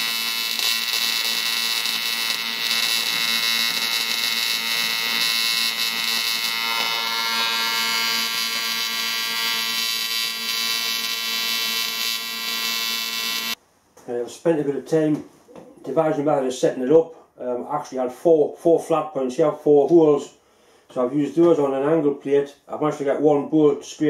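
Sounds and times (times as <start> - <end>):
welding arc buzzing: 0.0 - 13.6.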